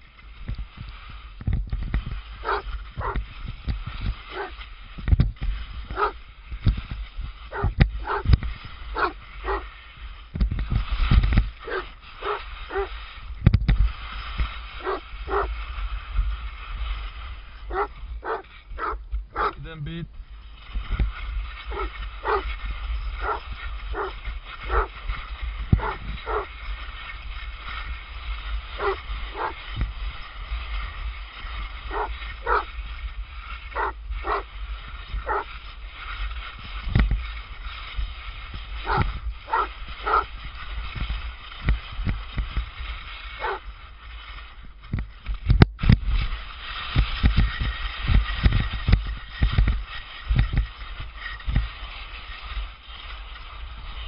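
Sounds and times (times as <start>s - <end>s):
skis sliding on snow: 0.0s - 54.0s
dog barking: 2.4s - 3.2s, 4.3s - 4.5s, 5.9s - 6.2s, 7.5s - 8.2s, 9.0s - 9.6s, 11.6s - 12.9s, 14.8s - 15.5s, 17.7s - 19.6s, 21.7s - 22.5s, 23.2s - 24.9s, 25.8s - 26.5s, 28.8s - 29.6s, 31.9s - 32.7s, 33.8s - 34.4s, 35.3s - 35.5s, 38.9s - 40.3s, 43.4s - 43.6s.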